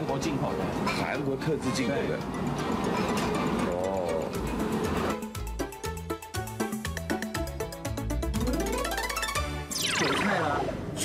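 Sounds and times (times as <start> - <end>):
music with steady beat and bass: 2.5 - 9.7.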